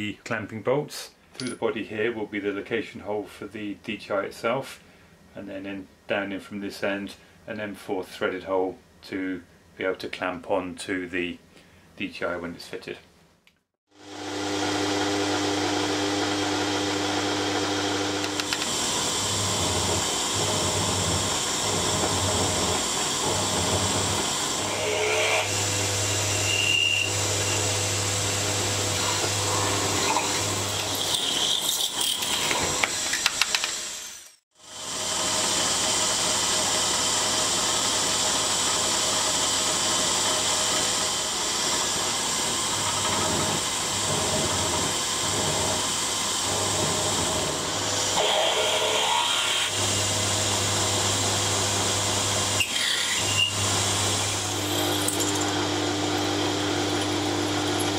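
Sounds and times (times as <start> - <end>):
drill boring through metal: 14.0 - 57.9
milling machine spindle running: 14.0 - 57.9
squeals and clicks from cutting: 26.3 - 27.6, 52.6 - 53.6.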